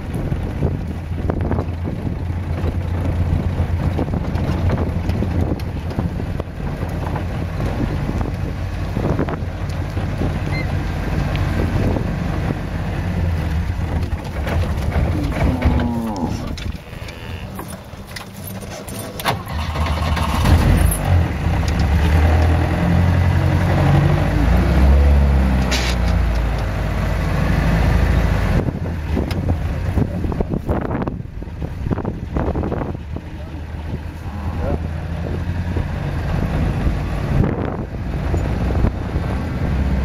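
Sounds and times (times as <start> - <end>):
vehicle engine rumbling: 0.0 - 40.0
vehicle bumping knocks: 13.6 - 20.8
cow mooing: 15.1 - 17.8, 34.2 - 34.9.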